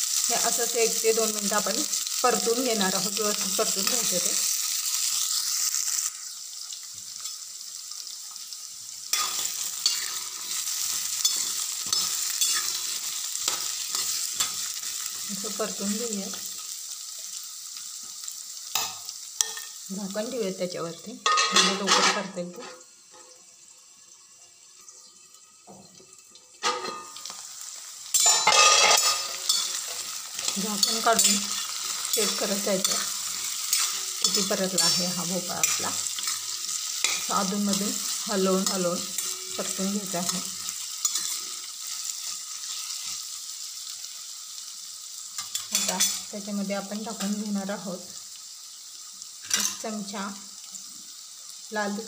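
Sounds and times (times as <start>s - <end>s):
pumpkin sizzling in hot oil: 0.0s - 52.0s
spatula scraping pan: 9.1s - 14.6s.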